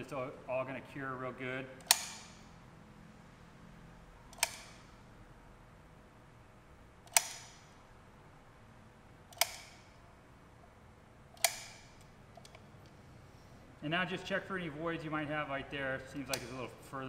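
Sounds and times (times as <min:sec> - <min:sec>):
adhesive gun trigger clicks: 0:01.8 - 0:02.5, 0:04.3 - 0:04.9, 0:07.0 - 0:07.8, 0:09.3 - 0:10.0, 0:11.4 - 0:12.6, 0:16.2 - 0:16.6.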